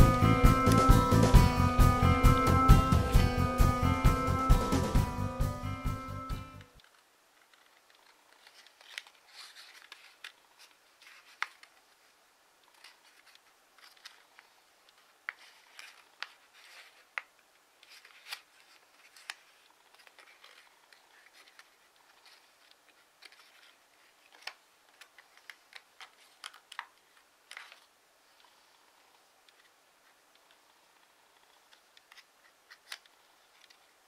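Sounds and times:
paper folding clicks: 0:06.7 - 0:34.0
paper rustling: 0:06.8 - 0:34.0.

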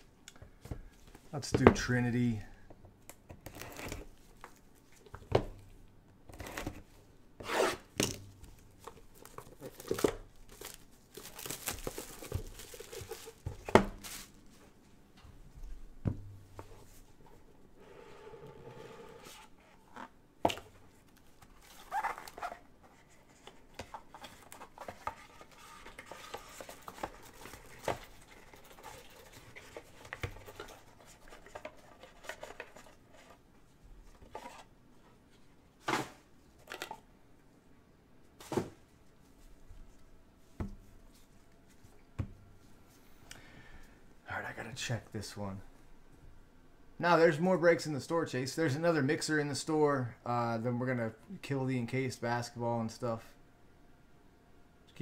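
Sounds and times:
plastic shrink-wrap tearing: 0:09.6 - 0:14.3
cardboard scraping: 0:17.8 - 0:20.1.

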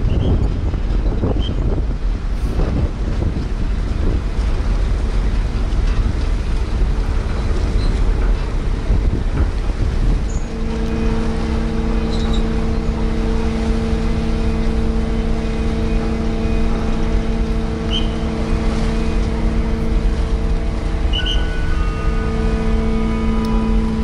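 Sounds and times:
churning propeller wash rumble: 0:00.0 - 0:24.0
ferry machinery drone: 0:00.0 - 0:24.0.

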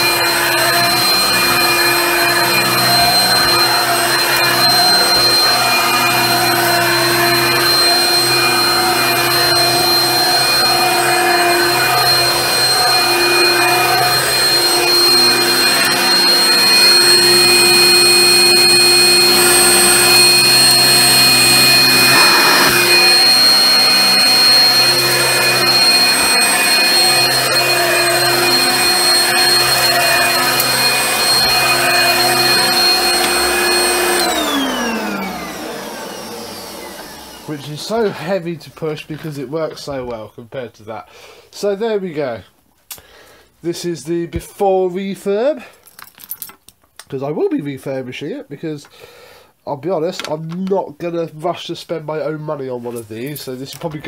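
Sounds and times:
motor winding down: 0:00.0 - 0:37.6
vacuum cleaner motor whine: 0:00.0 - 0:38.1.

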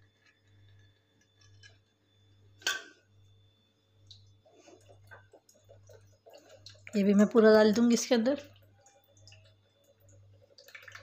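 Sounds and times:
milk pouring into bowl: 0:04.0 - 0:11.0.

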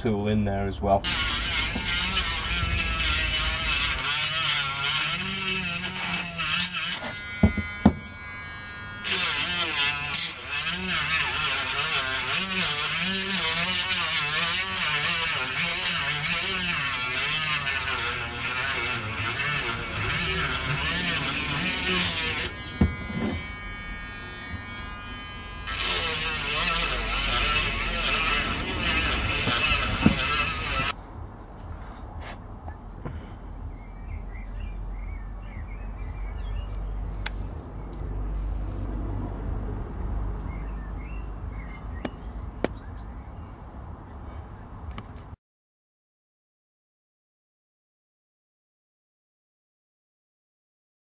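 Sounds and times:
rotary tool grinding metal: 0:01.0 - 0:31.0.

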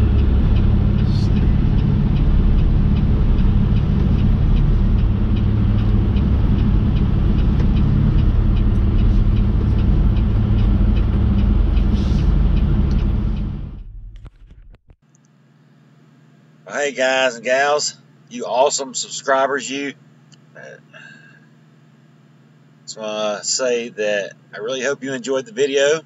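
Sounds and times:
light regular ticking: 0:00.0 - 0:13.7
diesel engine idling: 0:00.0 - 0:14.2.

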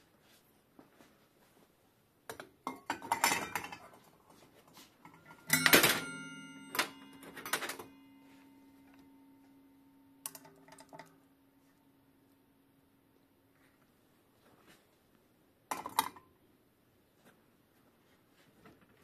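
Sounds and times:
steel bowl ringing: 0:05.1 - 0:12.1.

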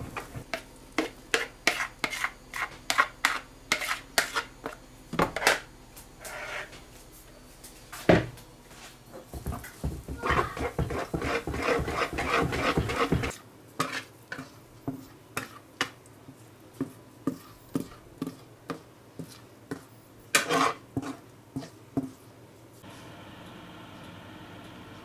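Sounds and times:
utensil tapping and scraping bowl: 0:00.3 - 0:05.6, 0:09.2 - 0:22.2
whisk beating batter in bowl: 0:01.0 - 0:04.5, 0:09.4 - 0:22.2.

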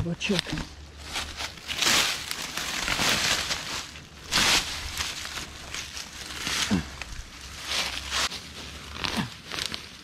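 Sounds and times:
hands scrabbling in dry leaves: 0:00.5 - 0:10.0.

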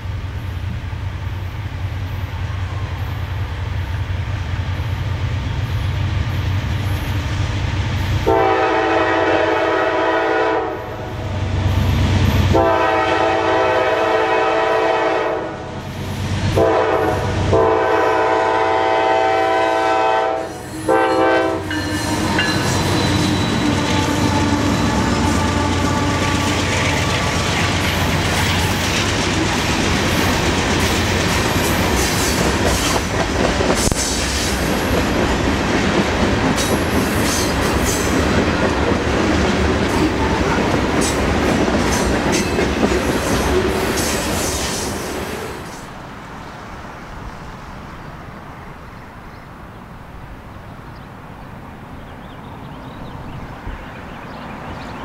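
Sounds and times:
train rumble passing: 0:00.0 - 0:55.0
locomotive horn chord: 0:08.2 - 0:11.2, 0:12.5 - 0:15.8, 0:16.5 - 0:27.4
wheels clacking over rail joints: 0:21.6 - 0:45.3.

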